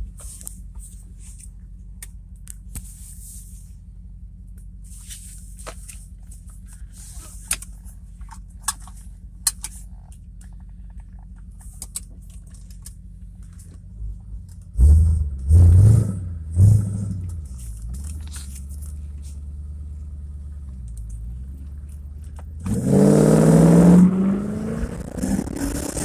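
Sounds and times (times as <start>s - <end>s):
car engine and tyres droning: 0.0s - 26.0s
gravel ticking against car: 4.5s - 14.7s, 17.2s - 22.6s
engine surges: 18.9s - 26.0s.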